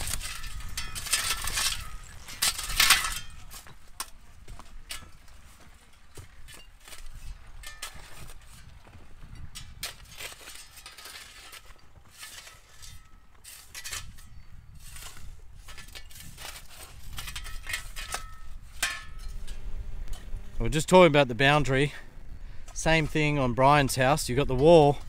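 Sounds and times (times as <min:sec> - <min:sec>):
wind rumble on microphone: 0:00.0 - 0:10.6, 0:11.8 - 0:25.0
construction knocks and clinks: 0:00.0 - 0:14.5, 0:15.6 - 0:20.4.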